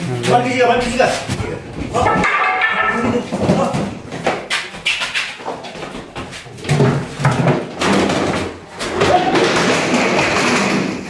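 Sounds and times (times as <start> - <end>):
knocks and bangs: 1.8 - 4.5.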